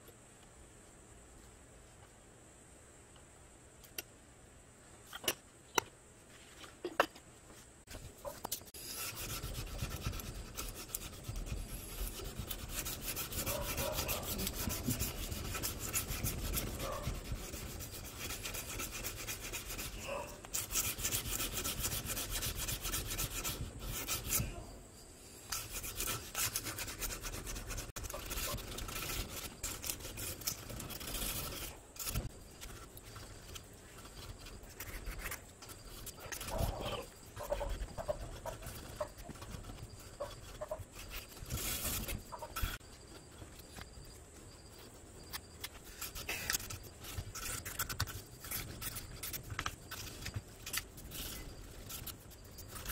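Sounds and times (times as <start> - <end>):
sandpaper rubbing on wood: 8.8 - 24.6, 25.5 - 42.8, 45.8 - 52.9.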